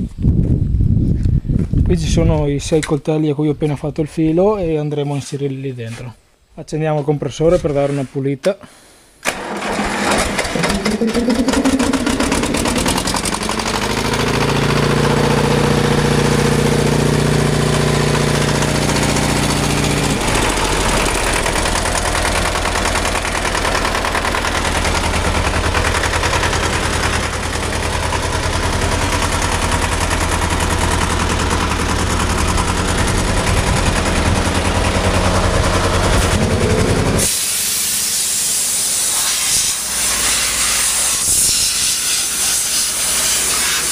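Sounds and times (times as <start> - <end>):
air compressor engine running: 9.3 - 43.9
compressed air hissing: 37.2 - 43.9.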